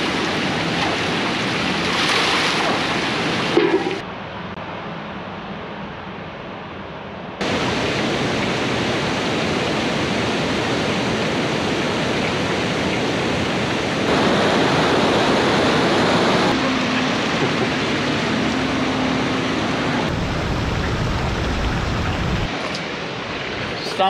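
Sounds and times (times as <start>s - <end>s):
river rushing over rocks: 13.0s - 20.4s.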